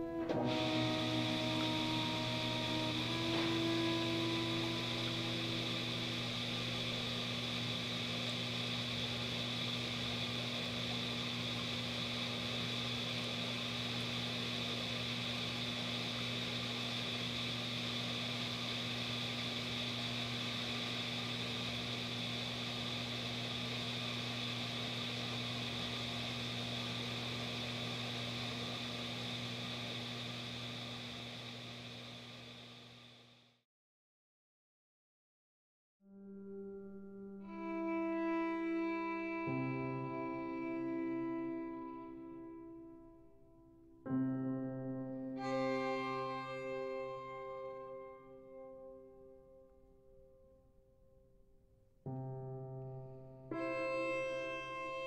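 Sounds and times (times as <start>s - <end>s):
low hum: 0.0s - 33.2s
even hiss: 0.0s - 33.3s, 37.4s - 42.6s.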